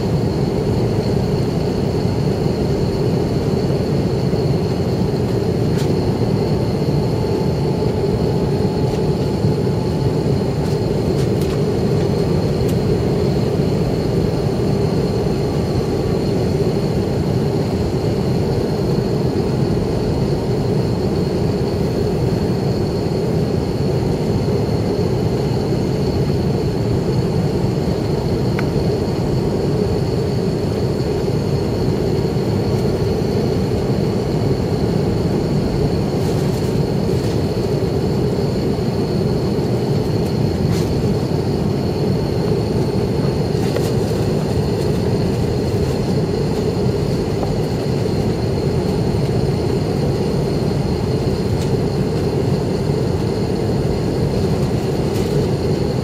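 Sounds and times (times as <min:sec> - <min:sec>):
aircraft engine noise: 0:00.0 - 0:56.0
thin high whine: 0:00.0 - 0:56.0
rushing airflow: 0:24.9 - 0:56.0.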